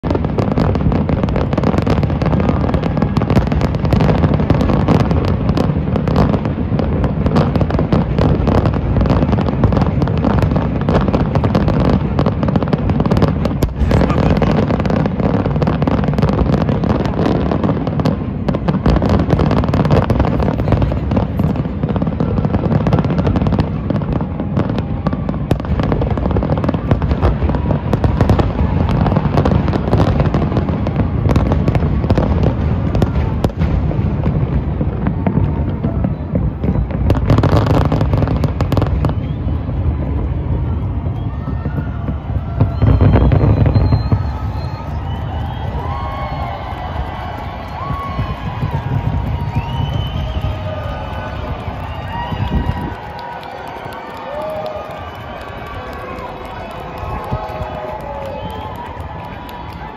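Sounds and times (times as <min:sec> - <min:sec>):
fireworks shell bursts and crackle: 0:00.0 - 0:24.4, 0:41.2 - 0:59.9.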